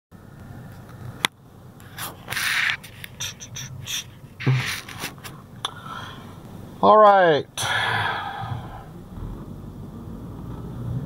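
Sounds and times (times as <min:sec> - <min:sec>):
person breathing: 0:05.6 - 0:06.4, 0:07.6 - 0:09.0.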